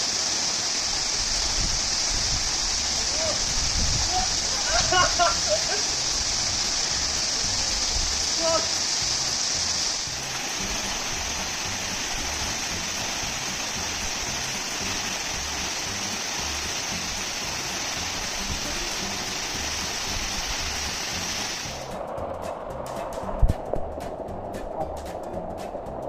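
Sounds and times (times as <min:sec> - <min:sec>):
waterfall rushing: 0:00.0 - 0:22.1.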